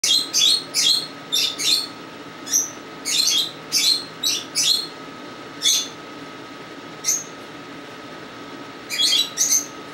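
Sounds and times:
cockatiel chirping: 0.0s - 1.9s, 2.5s - 4.9s, 5.6s - 6.0s, 7.0s - 7.3s, 8.9s - 9.7s.

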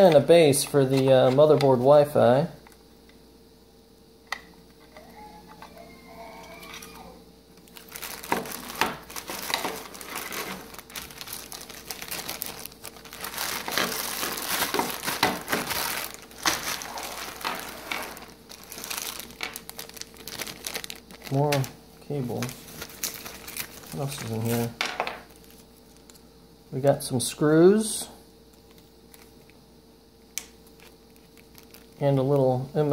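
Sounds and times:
plastic bags crinkling: 7.6s - 26.2s, 30.6s - 32.6s.

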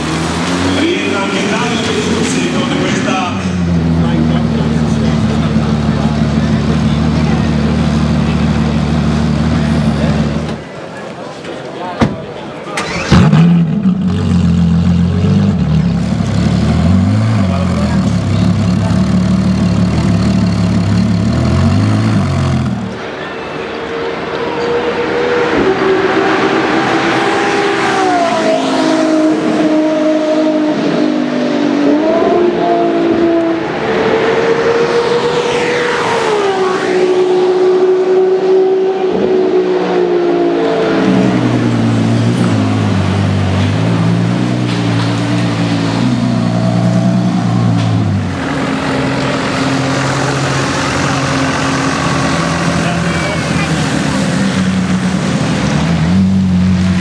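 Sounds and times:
car engine idling: 0.0s - 11.1s, 12.8s - 23.9s, 41.2s - 57.0s
sports car engine passing by: 12.8s - 57.0s.

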